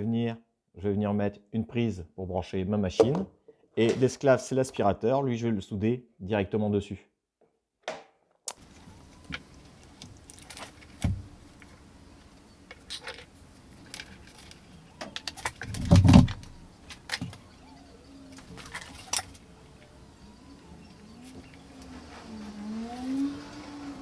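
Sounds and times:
clicks and rattles of tools: 0:12.7 - 0:17.4.

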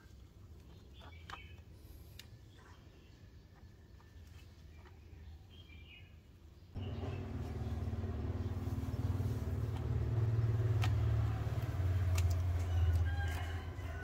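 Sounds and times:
low engine drone: 0:06.8 - 0:13.1
scissors snipping: 0:10.5 - 0:13.7.

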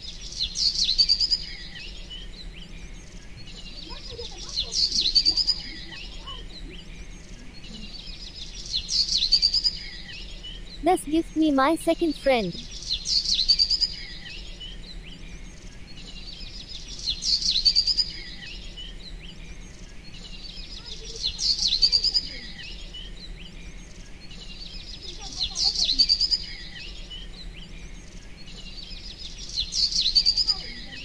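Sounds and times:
quiet bird chirps: 0:00.0 - 0:31.0
bird chirping phrase: 0:09.6 - 0:14.2.

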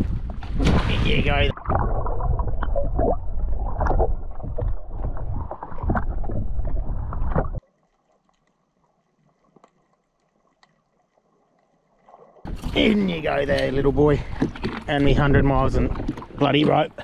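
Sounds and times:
muffled underwater rush: 0:00.0 - 0:09.6, 0:10.9 - 0:17.0.

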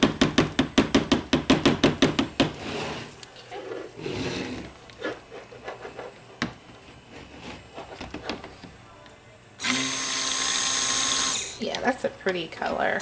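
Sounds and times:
stick blender running: 0:09.6 - 0:11.6.

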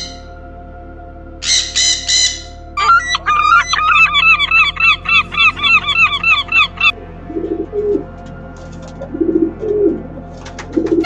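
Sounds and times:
gulls calling: 0:01.4 - 0:08.1
low honking calls: 0:01.4 - 0:08.2.

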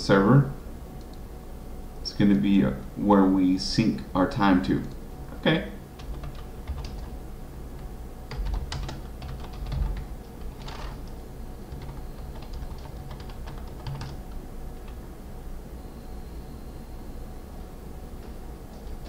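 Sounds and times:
typing on computer keyboard: 0:06.0 - 0:07.2, 0:08.3 - 0:15.0.

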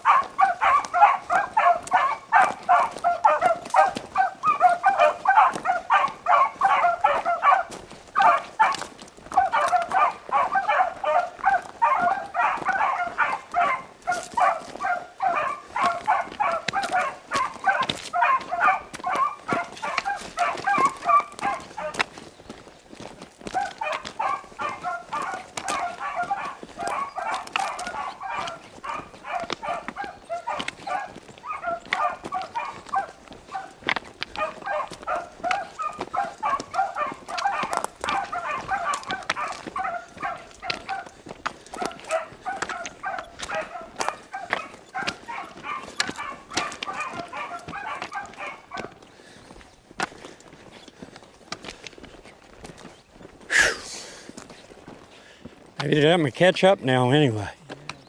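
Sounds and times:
dogs baying: 0:00.0 - 0:58.0.

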